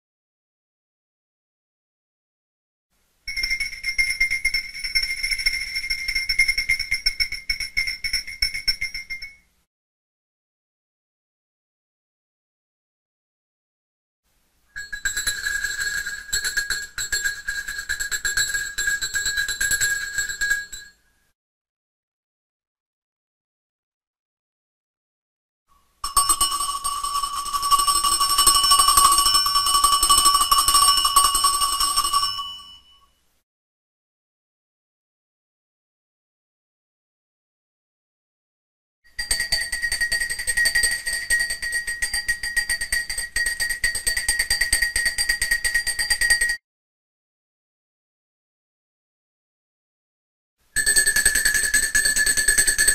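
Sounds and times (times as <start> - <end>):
dog bell ringing: 18.5 - 20.9, 26.0 - 33.1.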